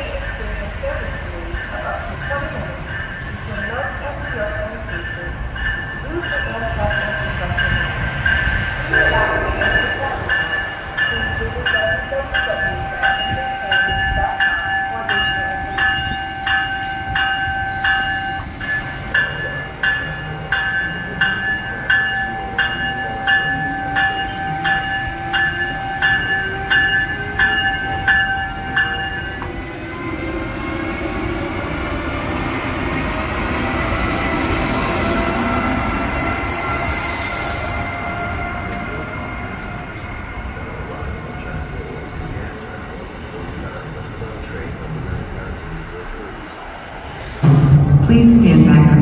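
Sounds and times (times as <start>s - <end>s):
locomotive bell ringing: 0.0s - 44.1s.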